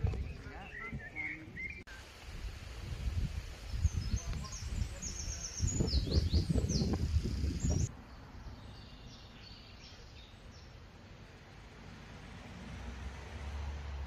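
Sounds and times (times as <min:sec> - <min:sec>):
small birds chirping: 0:00.0 - 0:02.0, 0:03.4 - 0:10.9
low rumble on microphone: 0:02.4 - 0:07.9.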